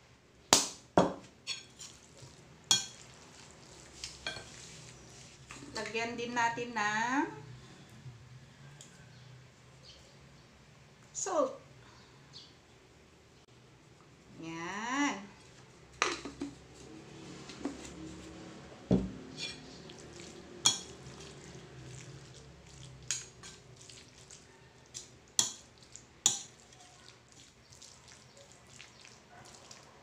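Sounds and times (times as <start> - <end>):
cutlery clinking against plate: 1.5 - 2.0, 2.7 - 3.0, 4.2 - 4.6, 19.4 - 19.7, 20.7 - 21.0
cutlery scraping a plate: 1.5 - 2.1, 2.7 - 3.1, 4.0 - 4.8, 19.3 - 19.9, 20.6 - 21.4, 23.1 - 23.7.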